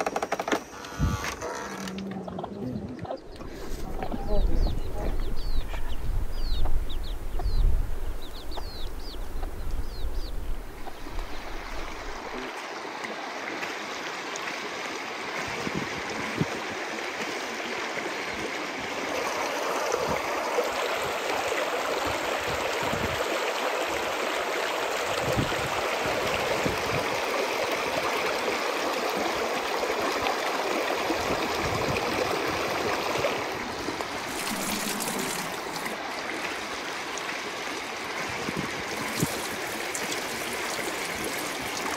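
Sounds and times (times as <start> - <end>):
chicks peeping: 2.3 - 11.0
stream babbling over stones: 3.2 - 7.6, 8.3 - 41.9.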